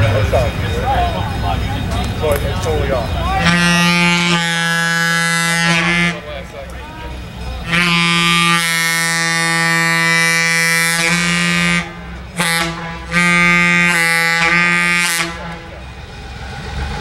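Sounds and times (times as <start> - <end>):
low engine rumble: 0.0 - 17.0
locomotive air horn blasts: 3.4 - 6.4, 7.1 - 15.8.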